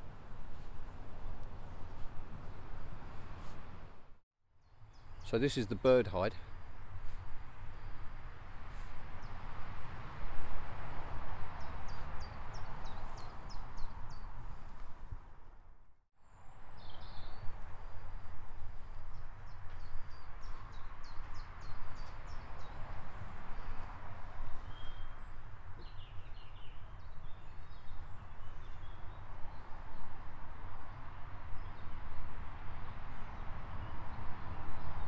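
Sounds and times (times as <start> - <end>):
small birds chirping: 11.6 - 14.4, 18.9 - 29.8.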